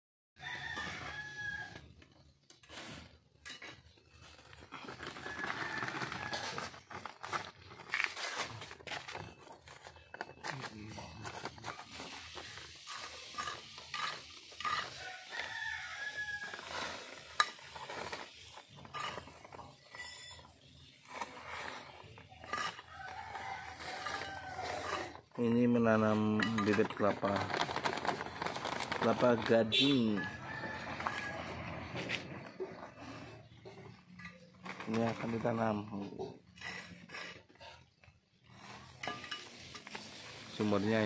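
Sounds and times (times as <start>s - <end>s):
rooster crowing: 0.4s - 1.9s, 5.2s - 6.7s, 14.8s - 17.0s, 22.8s - 25.1s, 29.9s - 32.2s
trowel scraping soil: 2.5s - 8.9s, 10.6s - 27.8s, 34.1s - 41.0s.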